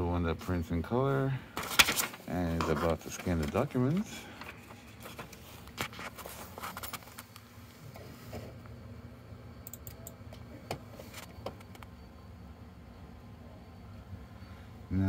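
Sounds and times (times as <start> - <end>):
low room hum: 0.0 - 15.0
computer mouse clicking: 9.6 - 10.2.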